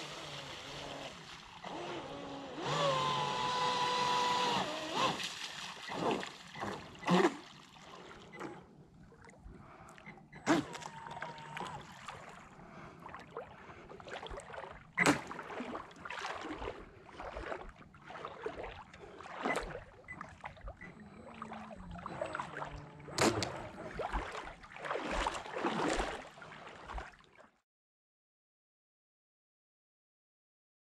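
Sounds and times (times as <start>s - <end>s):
faint falling motor tone: 0.0s - 5.3s, 10.3s - 12.1s, 20.7s - 24.4s
water spray and wash: 0.0s - 7.6s
sharp water splash: 4.1s - 8.1s, 14.2s - 19.8s, 22.2s - 27.2s.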